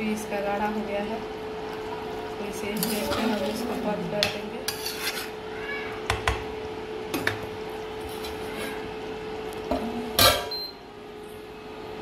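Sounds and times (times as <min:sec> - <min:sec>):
metal lid clattering down: 0:10.2 - 0:10.6.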